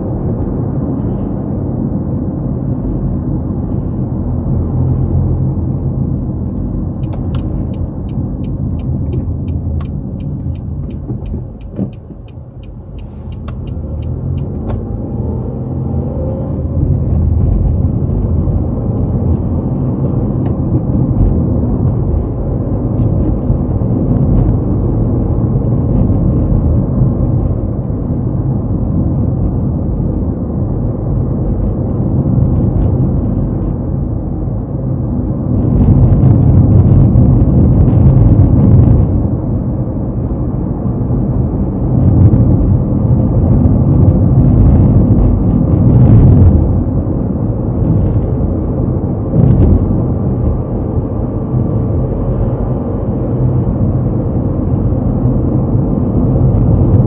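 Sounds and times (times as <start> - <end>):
car engine and tyre rumble: 0.0 - 57.0
turn signal ticking: 6.6 - 15.0.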